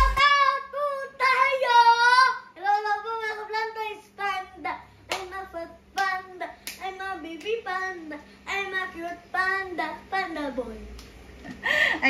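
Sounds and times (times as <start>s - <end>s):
girl singing: 0.0s - 11.0s
hand claps: 5.1s - 5.4s, 6.0s - 7.6s.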